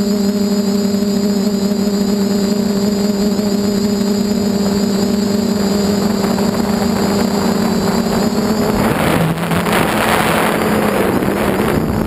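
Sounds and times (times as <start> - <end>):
drone motors humming: 0.0 - 12.0
wind rushing over camera: 3.0 - 12.0.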